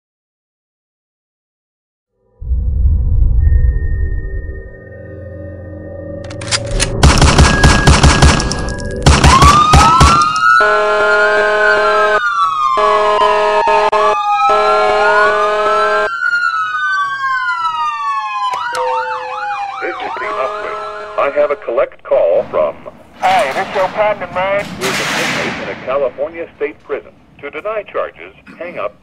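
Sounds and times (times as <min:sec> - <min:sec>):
gunfire: 0:06.7 - 0:10.4, 0:22.4 - 0:26.4
emergency sirens wailing: 0:07.3 - 0:28.4
siren yelp: 0:08.6 - 0:21.8
blaring horn: 0:09.9 - 0:16.2, 0:18.6 - 0:21.6.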